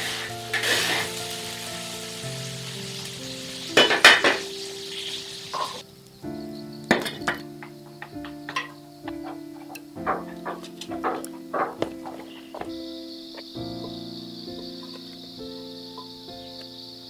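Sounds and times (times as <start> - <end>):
metal spatula scraping a wok: 0.0 - 1.1
frying sizzle: 0.0 - 17.0
soft instrumental music: 0.0 - 17.0.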